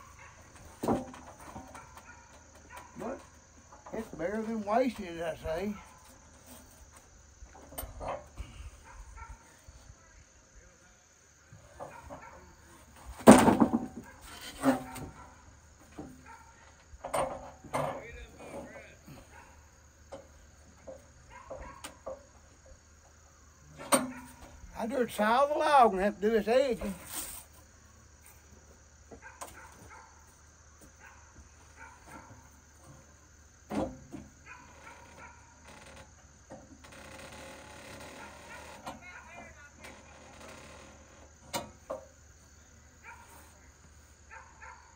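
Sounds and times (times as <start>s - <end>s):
wooden board knocking and scraping: 13.2s - 15.0s.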